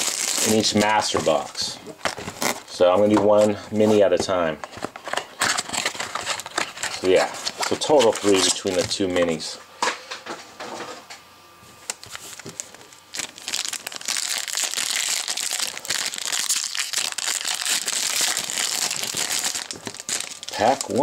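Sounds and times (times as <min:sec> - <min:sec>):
foil wrappers crinkling: 0:00.0 - 0:03.4, 0:04.7 - 0:09.4, 0:11.8 - 0:21.0.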